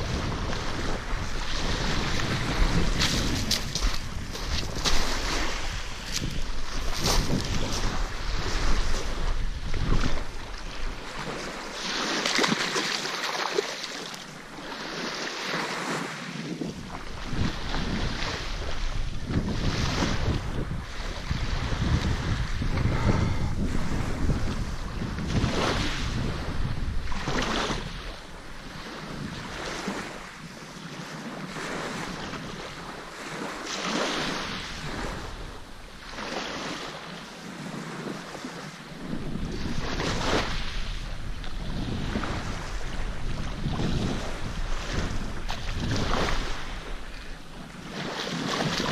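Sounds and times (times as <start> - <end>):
wind on microphone: 0.0 - 13.0, 14.0 - 48.9
waves washing onto pebbles: 0.0 - 18.7
small waves on gravelly shore: 0.0 - 48.9.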